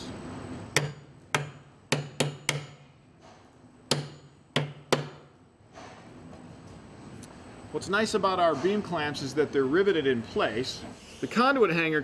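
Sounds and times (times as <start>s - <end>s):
hammer striking metal clamp: 0.8s - 5.3s.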